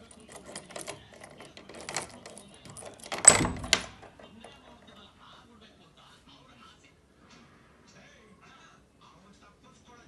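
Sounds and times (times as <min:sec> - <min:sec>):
key clicking in door lock: 0:00.0 - 0:04.7.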